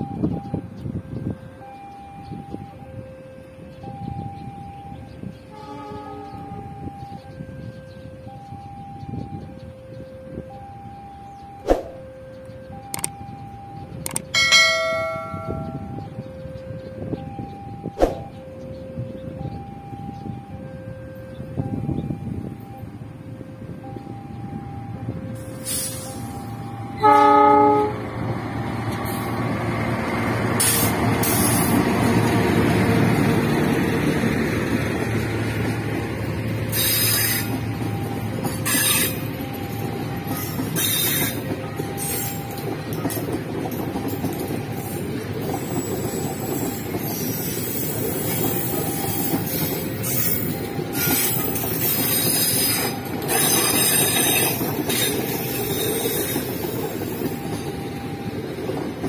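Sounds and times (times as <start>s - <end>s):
wheels rumbling on rail: 0.0s - 59.0s
train horn: 5.2s - 8.6s, 25.3s - 28.1s, 36.7s - 37.6s, 38.6s - 39.3s, 49.4s - 56.5s.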